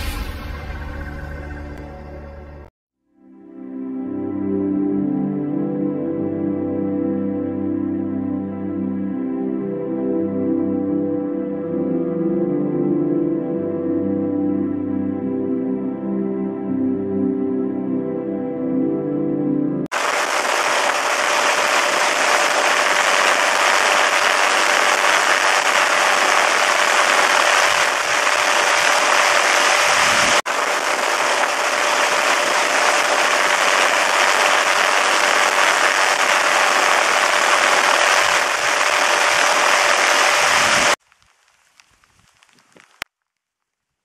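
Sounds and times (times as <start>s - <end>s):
dense rushing eruption noise: 19.9s - 41.0s.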